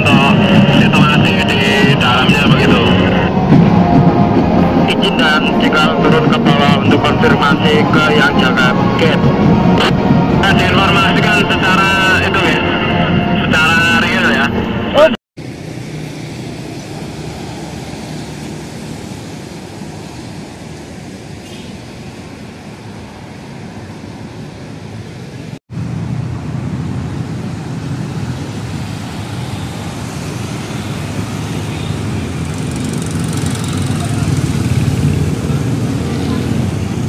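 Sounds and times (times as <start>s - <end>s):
motorcycles passing on wet road: 15.4s - 21.8s, 26.0s - 37.0s.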